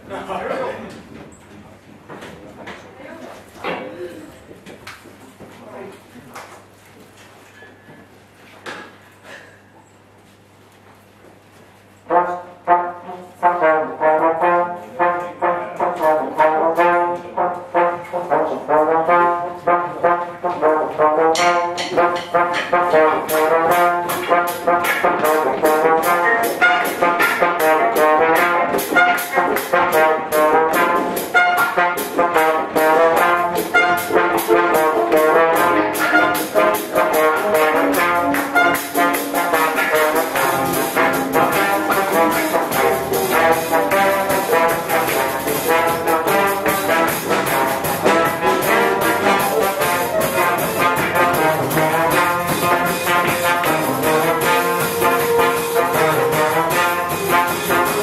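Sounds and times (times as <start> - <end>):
brass band playing: 12.1 - 58.0
drum beat with cymbals: 21.3 - 58.0.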